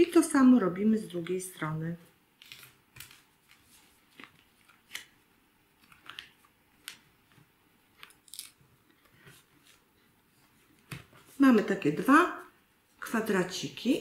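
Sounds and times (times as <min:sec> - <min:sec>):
paper being folded: 0:02.4 - 0:05.2, 0:05.8 - 0:11.4.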